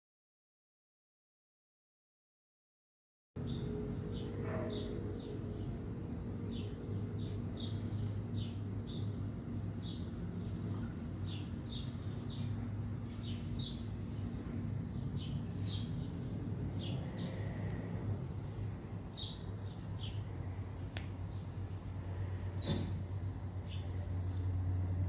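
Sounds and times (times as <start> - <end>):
low hum: 3.4 - 25.0
small bird chirping: 9.8 - 21.8.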